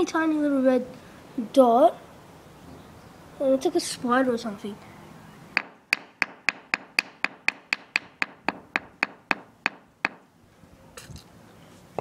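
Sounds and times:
hammer tapping on stone tile: 5.6 - 10.2.

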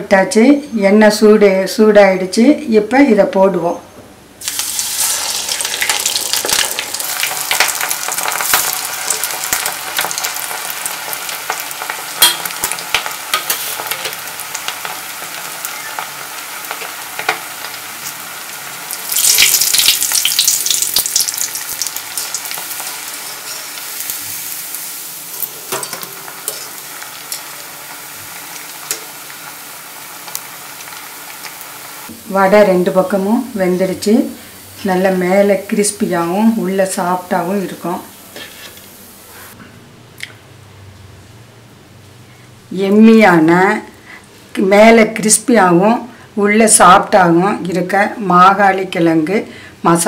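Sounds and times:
oil crackling: 4.4 - 32.1
deep-frying in hot oil: 4.4 - 39.6.

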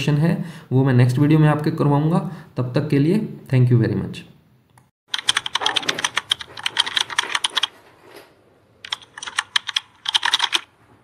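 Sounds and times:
keyboard typing: 5.1 - 7.8, 8.8 - 10.7.

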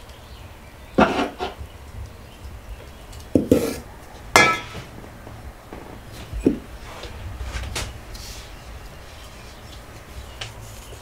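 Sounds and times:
bowls and glassware clinking: 3.5 - 4.9.

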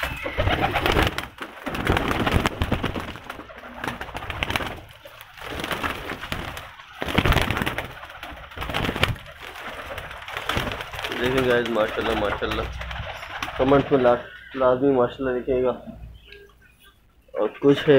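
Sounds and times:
pigeons cooing: 0.0 - 1.3, 1.9 - 17.9
pigeon wings flapping: 0.0 - 14.4.

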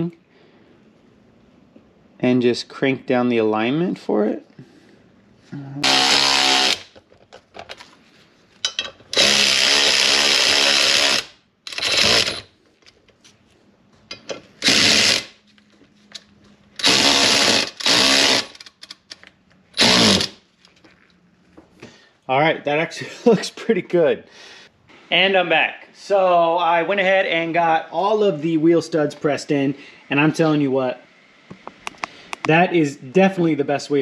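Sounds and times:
electric ratchet motor whining: 5.8 - 6.9, 9.1 - 12.5, 14.6 - 15.4, 16.8 - 18.7, 19.8 - 20.4.

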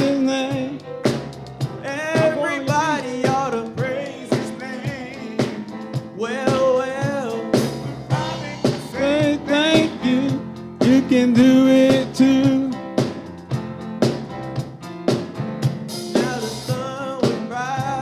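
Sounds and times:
man singing with vibrato: 0.0 - 0.9, 1.8 - 12.9, 16.1 - 18.0
drum kit playing: 0.0 - 18.0.

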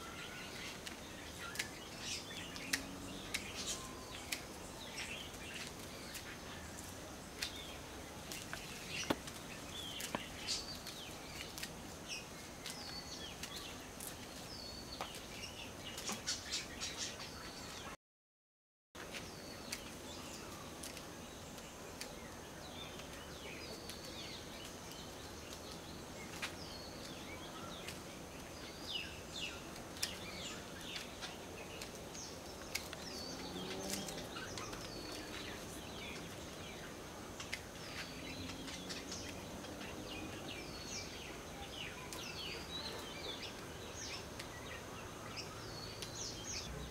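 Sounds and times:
small birds chirping: 0.0 - 18.0, 19.0 - 46.9.

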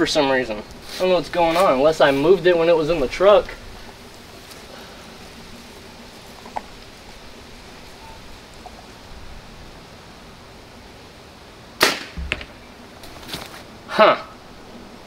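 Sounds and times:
outdoor background noise: 0.0 - 15.0
bow string snap: 11.8 - 12.5.

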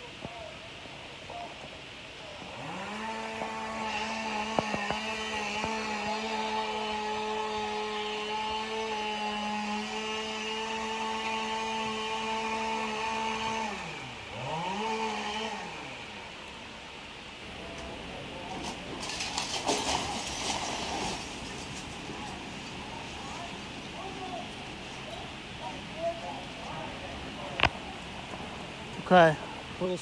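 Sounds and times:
two-stroke saw revving: 2.5 - 16.4.

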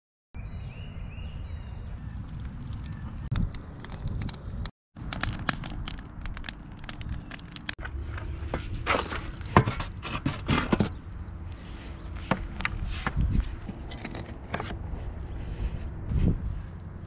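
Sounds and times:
wind rumbling on microphone: 0.7 - 8.9, 11.6 - 17.0.

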